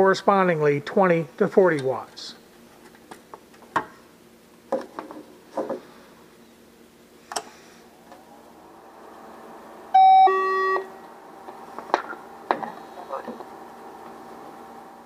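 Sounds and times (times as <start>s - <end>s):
two-tone electronic beep: 10.0s - 10.9s.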